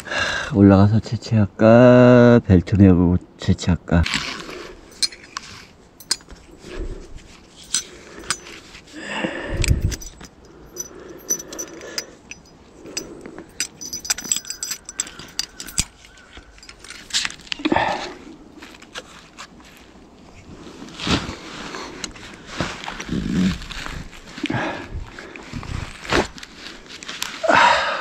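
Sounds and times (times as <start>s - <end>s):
metal buckles clinking: 4.9s - 6.8s, 7.5s - 8.8s, 9.5s - 17.5s.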